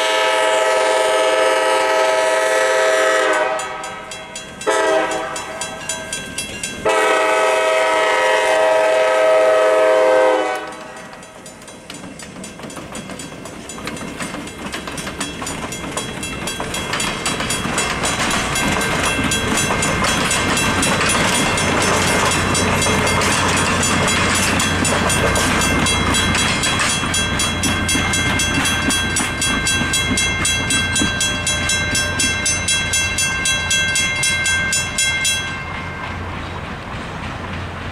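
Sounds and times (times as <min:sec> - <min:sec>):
train air horn blast: 0:00.0 - 0:04.0, 0:04.7 - 0:05.6, 0:06.8 - 0:11.1.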